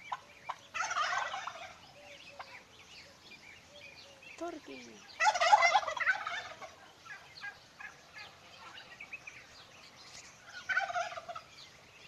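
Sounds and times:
poultry calling: 0.0 - 9.5, 10.4 - 11.7
rapid rattling poultry call: 0.1 - 1.8, 5.2 - 8.8, 10.6 - 11.5.

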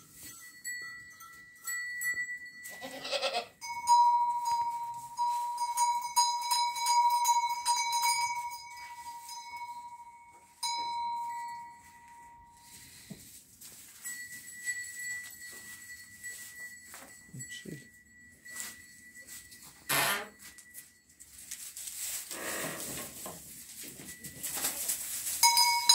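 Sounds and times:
goat bleating: 2.7 - 3.6.

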